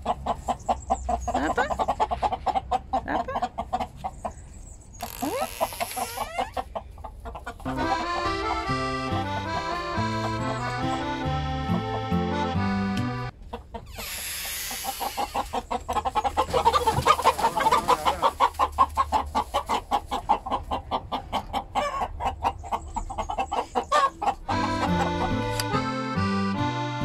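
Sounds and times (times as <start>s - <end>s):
chickens clucking in alarm: 0.0s - 27.0s
accordion music: 7.6s - 13.4s, 24.4s - 27.0s.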